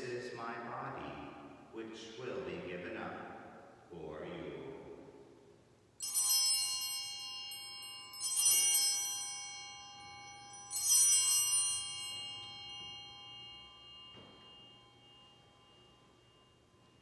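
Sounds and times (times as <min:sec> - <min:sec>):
altar bells ringing: 0:06.0 - 0:17.0.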